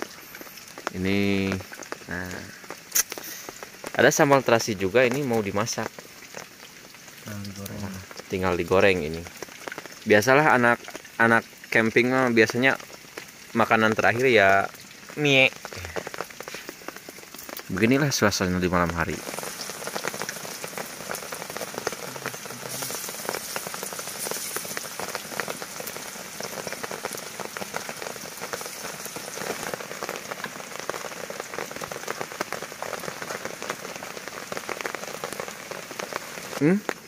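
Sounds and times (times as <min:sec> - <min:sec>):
hot oil sizzling in a wok: 0:00.0 - 0:37.0.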